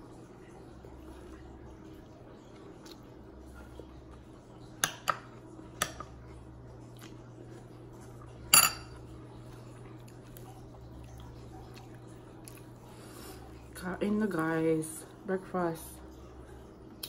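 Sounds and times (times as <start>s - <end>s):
metal fork clinking on glass plate: 8.5s - 9.0s.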